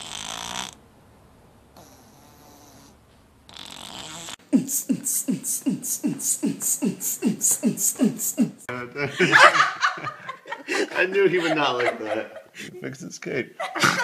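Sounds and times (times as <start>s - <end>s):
cat snoring: 0.0s - 0.8s, 1.8s - 4.4s.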